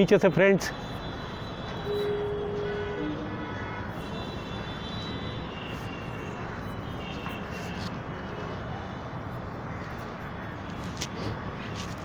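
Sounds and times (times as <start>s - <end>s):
faint high-pitched whistle tones: 1.9s - 2.6s.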